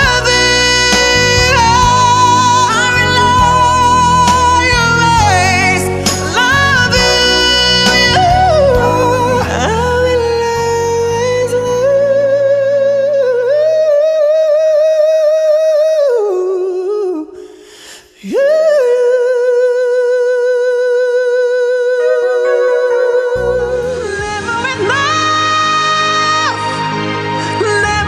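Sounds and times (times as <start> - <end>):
backing track: 0.0 - 14.1, 21.8 - 28.0
man singing high notes: 0.0 - 17.4, 18.2 - 26.2.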